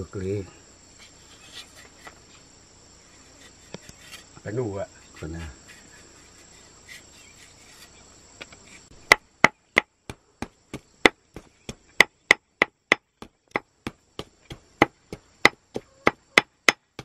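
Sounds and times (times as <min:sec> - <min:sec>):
faint insect chorus: 0:00.0 - 0:17.0
chopping on wooden board: 0:09.1 - 0:17.0.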